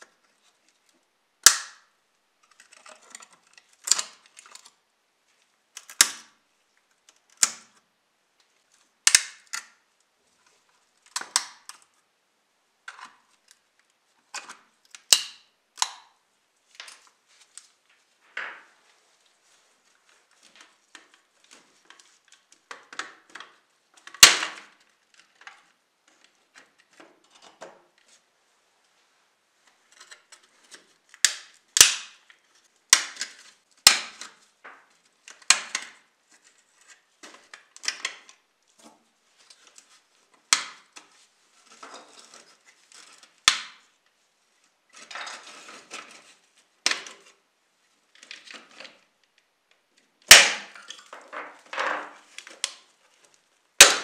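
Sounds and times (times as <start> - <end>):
model car parts snapping and clacking: 1.4 - 4.8, 5.8 - 6.4, 7.0 - 7.8, 9.1 - 9.8, 11.0 - 11.9, 14.3 - 16.1, 21.9 - 28.0, 29.9 - 36.1, 36.9 - 39.0, 40.4 - 41.1, 43.4 - 43.8, 48.2 - 52.9, 53.8 - 54.0.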